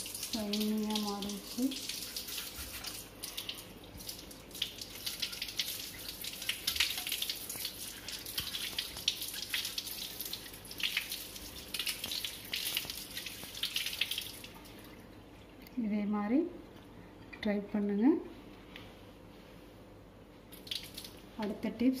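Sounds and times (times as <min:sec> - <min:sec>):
tap water running and splashing: 0:00.0 - 0:15.2, 0:20.5 - 0:21.2.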